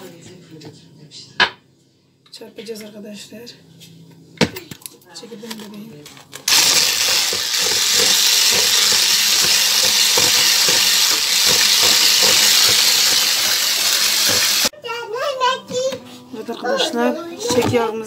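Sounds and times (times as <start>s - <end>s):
beaters clicking on bowl: 6.4s - 14.7s
electric hand mixer running: 6.5s - 14.7s.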